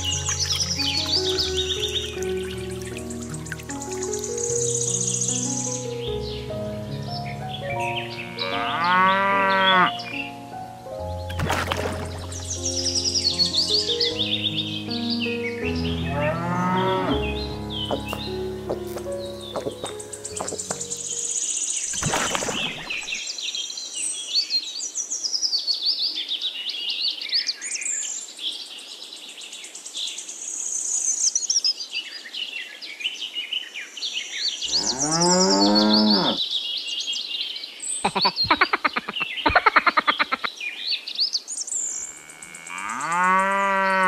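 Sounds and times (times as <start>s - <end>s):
small birds chirping: 0.0s - 8.8s, 11.0s - 43.6s
cow mooing: 8.2s - 9.9s, 16.1s - 17.2s, 34.7s - 36.4s, 42.1s - 44.0s.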